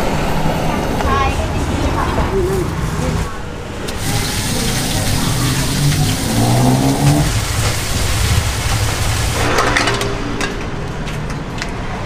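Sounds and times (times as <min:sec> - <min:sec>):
steady hiss: 0:03.9 - 0:09.6
vehicle engine revving up: 0:04.0 - 0:09.5.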